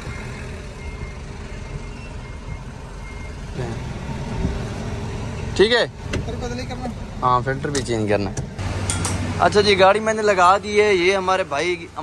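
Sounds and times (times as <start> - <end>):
car engine rumble: 0.0 - 12.0
faint high beep: 0.1 - 3.5.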